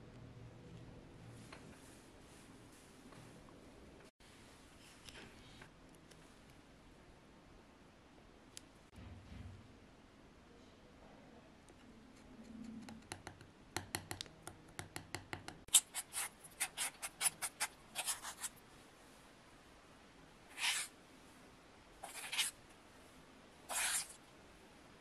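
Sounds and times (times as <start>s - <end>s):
spoon scraping bowl: 15.7s - 18.5s, 20.5s - 20.9s, 22.0s - 22.6s, 23.7s - 24.2s.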